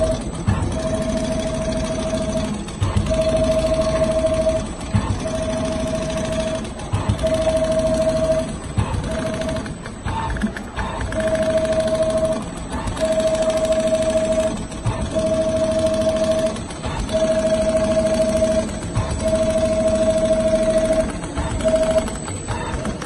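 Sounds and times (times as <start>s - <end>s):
sewing machine whine and rattle: 0.0s - 23.0s.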